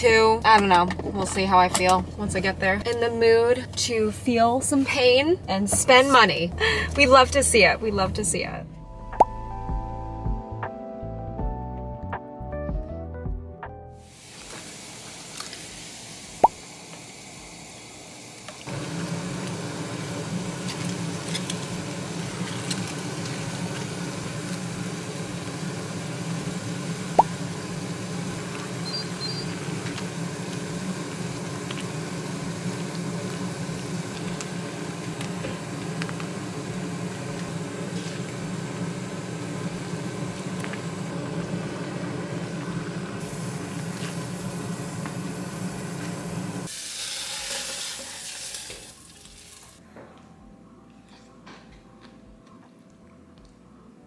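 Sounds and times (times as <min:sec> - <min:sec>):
soup bubbling in a saucepan: 0:14.1 - 0:49.8.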